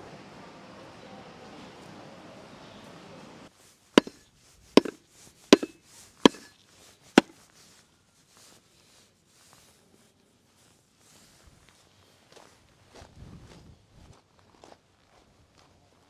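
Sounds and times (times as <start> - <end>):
cleaver chopping meat and bone: 4.0 - 4.2, 4.8 - 5.0, 5.6 - 6.5.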